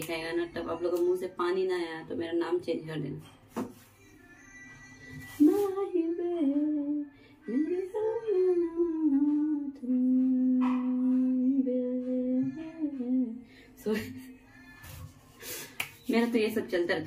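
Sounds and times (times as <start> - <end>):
woman singing: 4.0 - 15.2.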